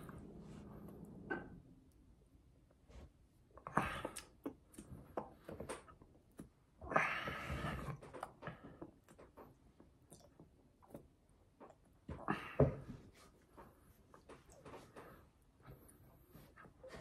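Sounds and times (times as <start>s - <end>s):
person chewing and lip smacking: 4.0s - 6.6s, 8.1s - 12.0s.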